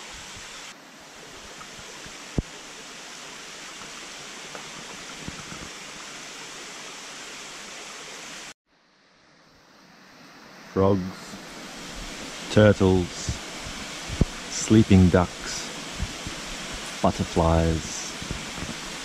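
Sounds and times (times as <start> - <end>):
stream and waterfall rushing: 0.0 - 8.6, 9.8 - 19.0.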